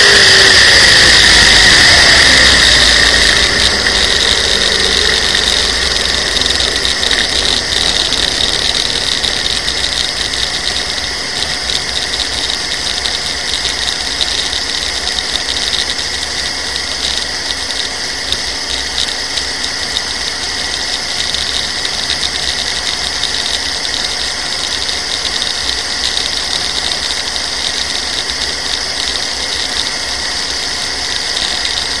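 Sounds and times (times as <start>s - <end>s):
dragster engine at low revs: 0.0s - 32.0s
road rumble: 0.0s - 32.0s
wind noise: 0.0s - 32.0s.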